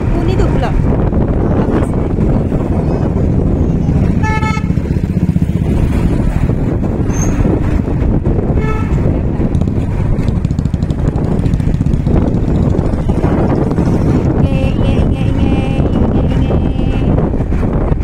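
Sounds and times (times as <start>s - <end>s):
wind and road noise: 0.0s - 18.0s
vehicle horn honks: 4.2s - 4.8s, 8.6s - 9.1s.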